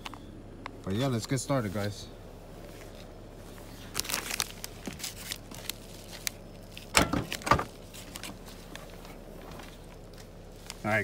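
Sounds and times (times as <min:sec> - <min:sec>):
packaging rustling and crinkling: 0:03.7 - 0:08.9.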